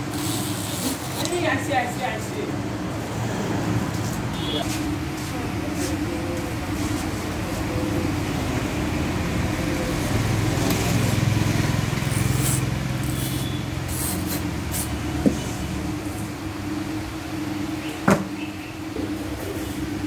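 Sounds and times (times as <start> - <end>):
vehicle engine running: 2.4 - 18.0.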